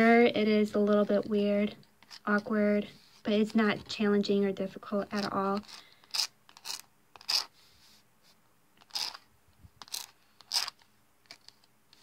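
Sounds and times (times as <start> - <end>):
plastic card scraping metal plate: 8.8 - 9.2.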